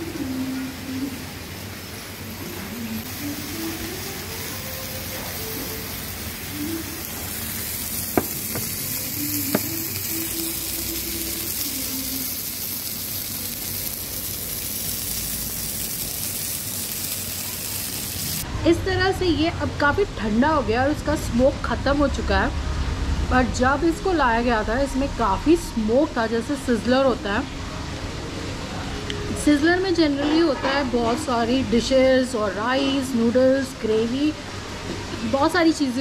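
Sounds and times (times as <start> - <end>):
food sizzling on hot plate: 0.0 - 18.5.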